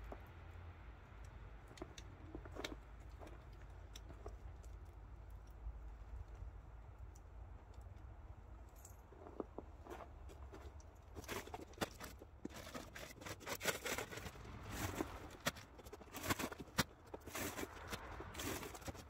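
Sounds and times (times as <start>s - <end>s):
footsteps crunching in snow: 13.6s - 19.0s.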